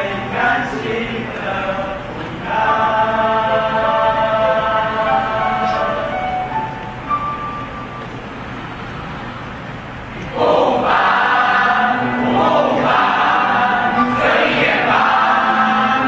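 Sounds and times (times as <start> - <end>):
mixed choir singing: 0.0 - 6.4, 10.3 - 16.0.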